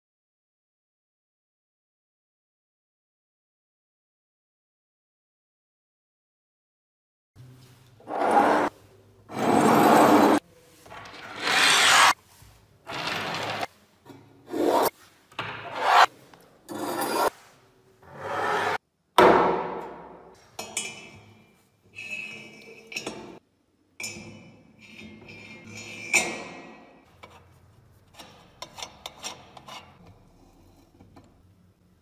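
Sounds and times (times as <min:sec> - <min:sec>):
metal parts sliding on wood: 0:09.3 - 0:12.2, 0:12.9 - 0:13.7, 0:16.7 - 0:17.4
metallic clinks and scrapes: 0:20.5 - 0:23.4, 0:24.0 - 0:31.4.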